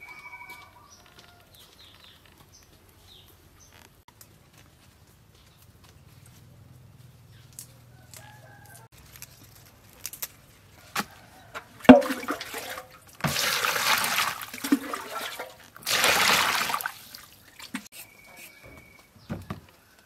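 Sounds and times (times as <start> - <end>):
water splashing and sloshing: 11.0 - 17.9.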